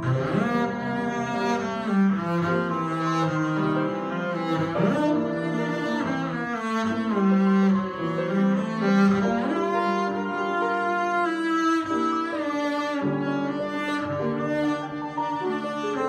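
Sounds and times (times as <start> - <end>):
bowed double bass: 0.0 - 16.0.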